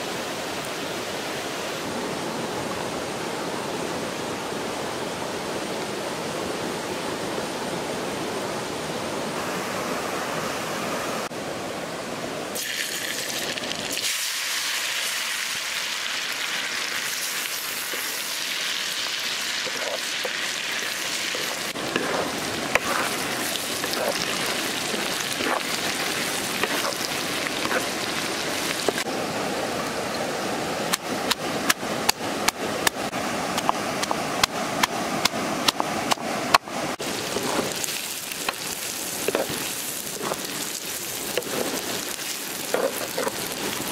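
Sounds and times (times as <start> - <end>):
oil sizzling in a wok: 12.6 - 29.1, 37.1 - 43.9
wooden spatula scraping: 19.6 - 29.0, 37.3 - 43.9.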